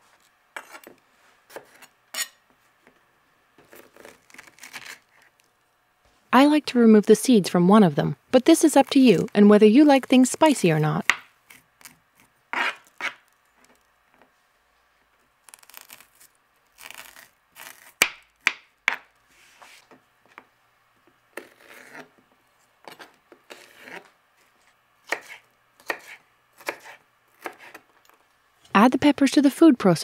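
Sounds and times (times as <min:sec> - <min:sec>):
knife cutting on plastic board: 0:21.4 - 0:22.1, 0:25.1 - 0:27.8.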